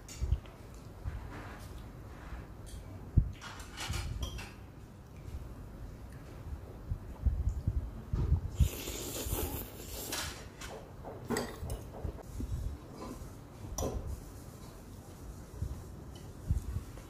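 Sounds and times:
slurping noodles: 8.5s - 10.4s.

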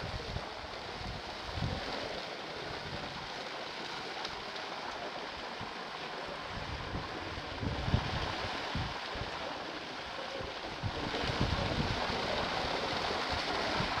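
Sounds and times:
rain falling on pavement: 0.0s - 14.0s
wind buffeting microphone: 6.5s - 9.6s, 10.3s - 14.0s.

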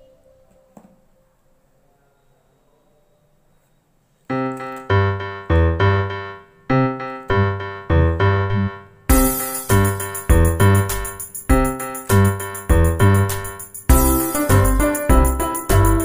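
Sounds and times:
keyboard music with piano chords: 4.2s - 16.0s.

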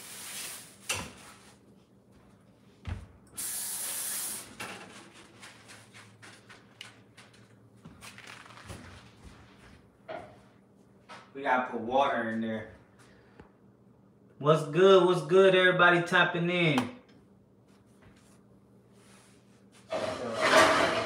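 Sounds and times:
kitchen tap spraying water: 0.0s - 0.8s, 3.4s - 4.6s.

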